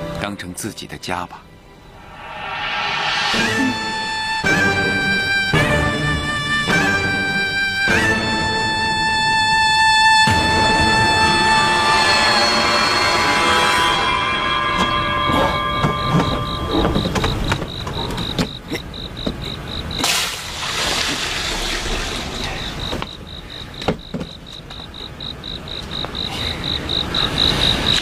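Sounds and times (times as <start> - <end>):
crickets chirping: 0.0 - 28.0
wooden knocks: 15.8 - 18.6, 23.8 - 24.9
water splashing: 20.0 - 22.9.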